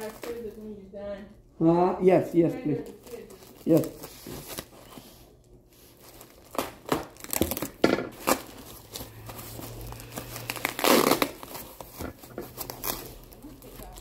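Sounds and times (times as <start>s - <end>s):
packing wrap crinkling: 0.0s - 0.9s, 2.2s - 14.0s.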